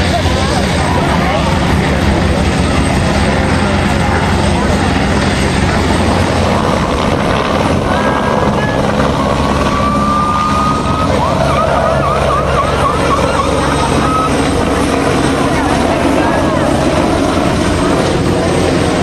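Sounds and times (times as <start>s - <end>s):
helicopter rotor thrum: 0.0s - 19.0s
turbine engine rushing noise: 0.0s - 19.0s
thin high warbling tone: 7.9s - 18.1s.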